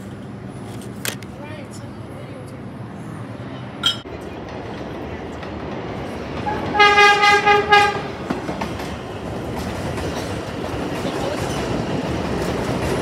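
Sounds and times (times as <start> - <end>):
train rumbling on track: 0.0 - 13.0
train horn blasts: 6.4 - 8.1.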